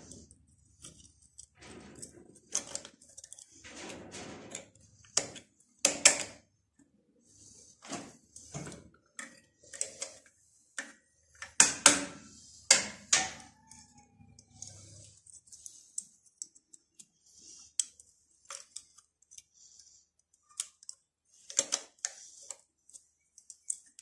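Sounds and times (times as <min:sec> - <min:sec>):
metallic clicks and knocks: 0:00.0 - 0:06.4, 0:07.9 - 0:19.5.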